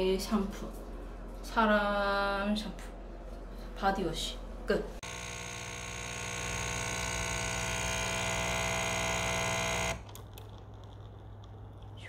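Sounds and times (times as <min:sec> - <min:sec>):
coffee machine pump buzzing: 0:05.0 - 0:10.2.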